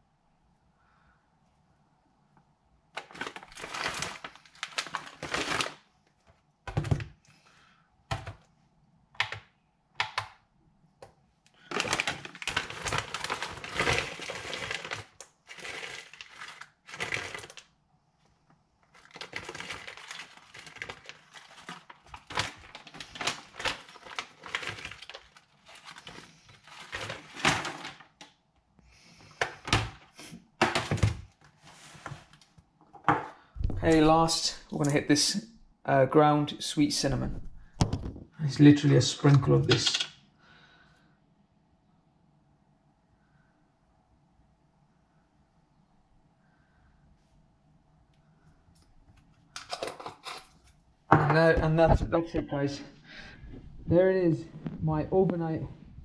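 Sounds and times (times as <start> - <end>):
plastic bag rustling: 3.0 - 5.9, 11.6 - 17.7, 18.8 - 28.2.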